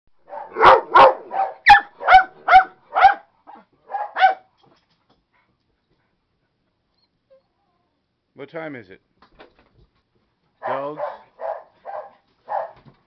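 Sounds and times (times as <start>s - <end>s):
dog barking: 0.2s - 4.5s, 10.6s - 12.8s.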